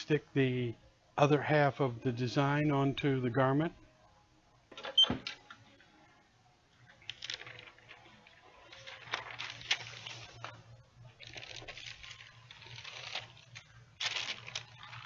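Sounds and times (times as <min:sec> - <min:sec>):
paper rustling and crinkling: 0:06.8 - 0:15.0.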